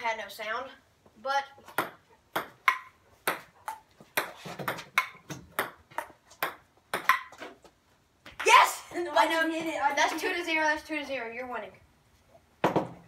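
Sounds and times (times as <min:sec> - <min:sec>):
ping-pong ball clicking off paddles: 0:01.8 - 0:07.4.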